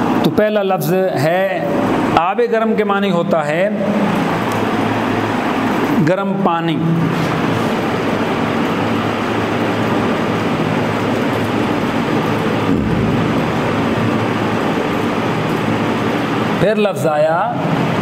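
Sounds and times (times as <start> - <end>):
loud background noise: 0.0 - 18.0
low hum: 9.2 - 16.6
low thud: 12.7 - 14.5.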